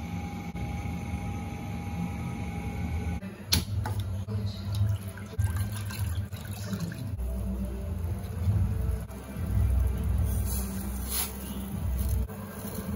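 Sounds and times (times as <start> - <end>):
steady low hum: 0.0 - 5.6
water boiling in a pan: 4.6 - 12.9.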